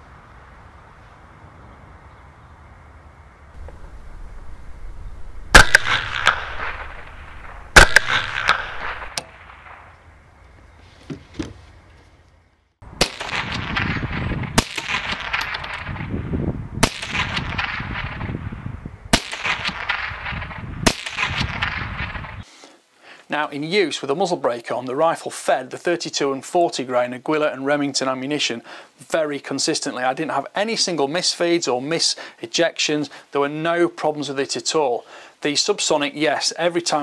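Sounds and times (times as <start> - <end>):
steady rushing noise: 3.5 - 9.7
rifle shots: 5.5 - 9.9, 13.0 - 16.2, 16.8 - 18.4, 19.1 - 22.4.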